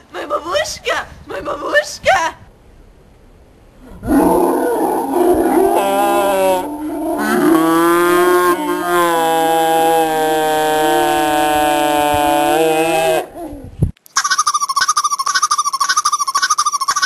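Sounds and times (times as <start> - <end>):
lower voice wailing: 4.0 - 13.6.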